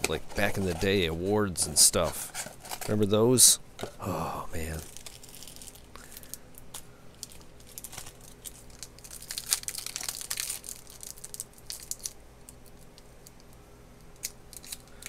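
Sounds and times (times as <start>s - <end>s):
foil wrapper tearing and crinkling: 4.6s - 13.0s, 14.2s - 15.0s.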